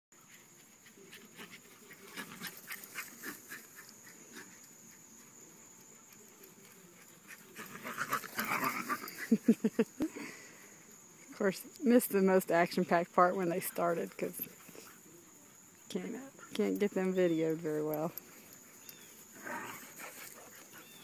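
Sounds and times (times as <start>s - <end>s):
dogs panting: 0.3s - 5.4s, 6.1s - 10.0s, 13.3s - 21.0s.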